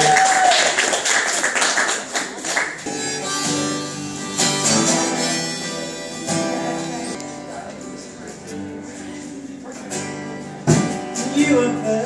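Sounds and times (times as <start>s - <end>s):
applause: 0.0s - 2.9s
harmonica notes: 2.8s - 7.7s
strummed acoustic guitar: 2.8s - 12.0s.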